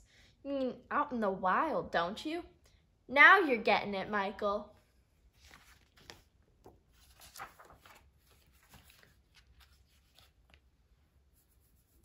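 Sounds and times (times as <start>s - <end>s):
book pages rustling: 5.2s - 12.0s.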